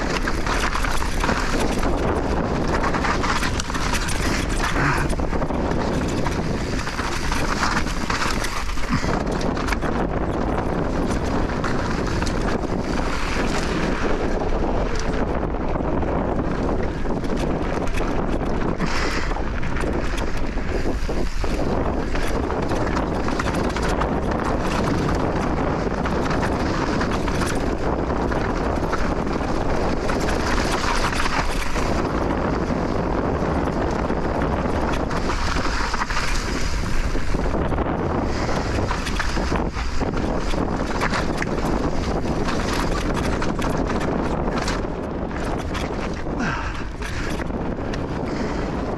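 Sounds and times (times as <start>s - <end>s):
bike tyres rolling on rocky trail: 0.0s - 48.9s
wind buffeting microphone: 0.0s - 48.9s.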